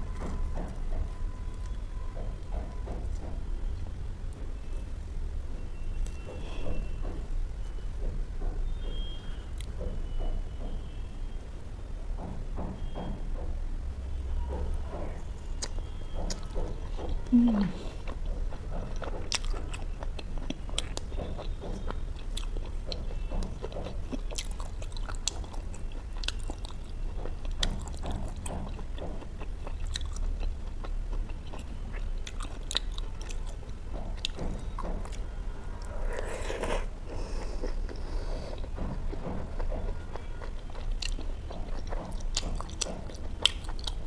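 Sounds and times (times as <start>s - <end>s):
chewing with mouth clicks: 15.1s - 44.0s.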